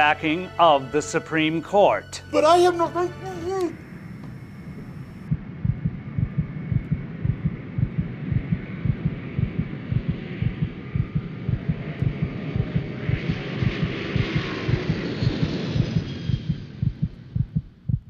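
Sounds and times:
faint hum: 0:02.0 - 0:18.0
heartbeat thumps: 0:05.3 - 0:18.0.

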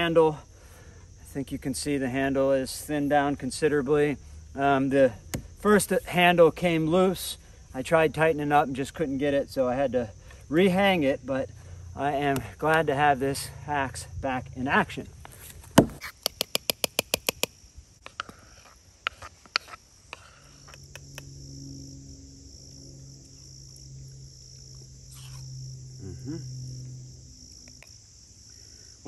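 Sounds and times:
crickets chirping: 0:00.0 - 0:29.0
sharp clicks: 0:16.0 - 0:17.5
plane engine droning overhead: 0:19.9 - 0:29.0.

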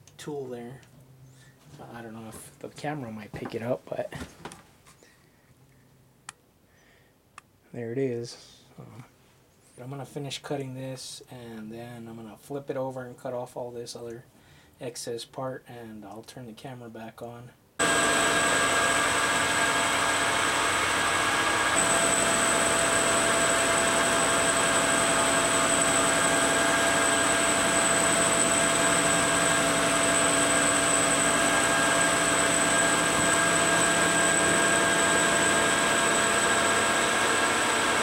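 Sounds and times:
metal lathe cutting aluminum: 0:17.8 - 0:38.0
steady high whine: 0:17.8 - 0:38.0.

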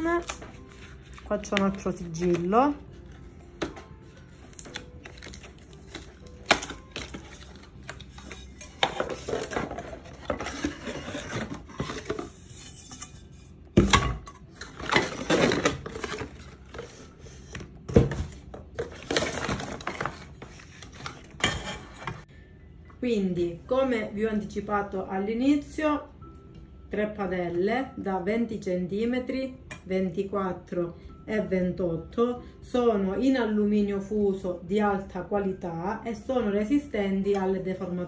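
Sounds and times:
cardboard rustling and scraping: 0:07.0 - 0:12.9.

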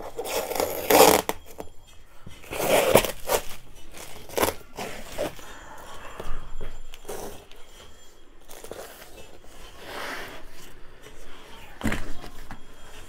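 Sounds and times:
tape and paper crinkling: 0:00.0 - 0:05.6.

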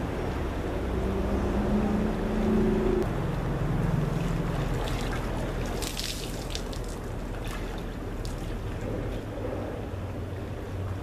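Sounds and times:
steady low rumble: 0:00.0 - 0:11.0
crackling splash: 0:04.1 - 0:09.2.

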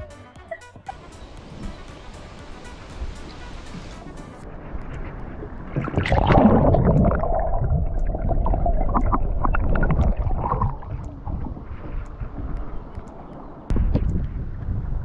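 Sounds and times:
water gurgling and splashing: 0:05.3 - 0:11.9.

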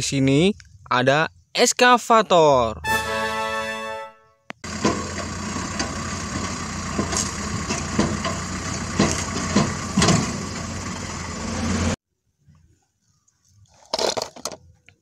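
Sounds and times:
excavator diesel engine running: 0:04.6 - 0:12.0.

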